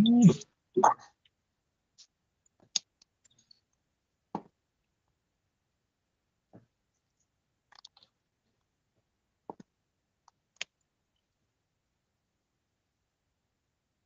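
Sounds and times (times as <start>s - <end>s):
faint clicks and taps: 6.5s - 11.3s.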